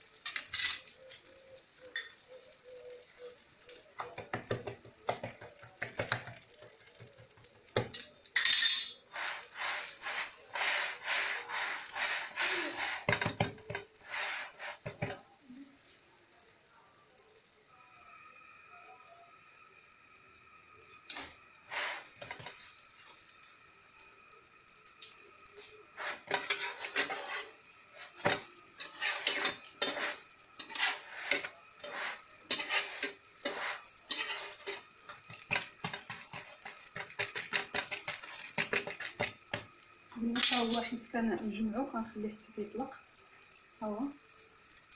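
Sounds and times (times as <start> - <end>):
bread sizzling: 0.0 - 44.9
metal spatula scraping frying pan: 8.3 - 15.2, 26.0 - 39.6, 40.4 - 40.9.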